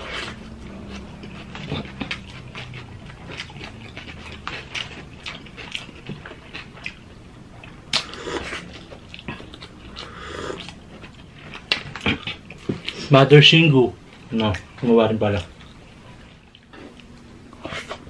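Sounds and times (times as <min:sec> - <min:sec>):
wet chewing and lip smacks: 0:00.0 - 0:13.1.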